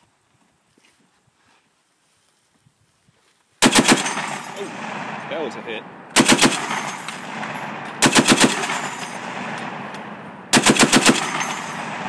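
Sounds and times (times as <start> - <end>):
gunfire echo: 3.6 - 12.0
machine gun bursts: 3.6 - 12.0.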